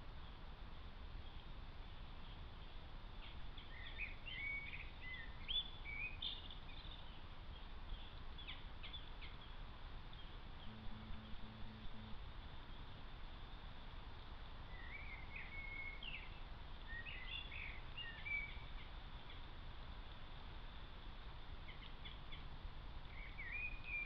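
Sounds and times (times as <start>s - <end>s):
background hiss: 0.0s - 24.0s
songbird chirping and whistling: 3.2s - 7.2s, 10.2s - 12.9s, 14.7s - 18.9s, 23.1s - 24.0s
low even pulses: 10.6s - 12.9s.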